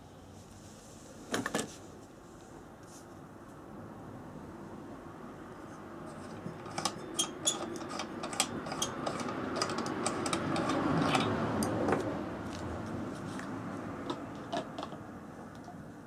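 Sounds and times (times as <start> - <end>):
clicks and metallic scrapes: 6.1 - 12.6.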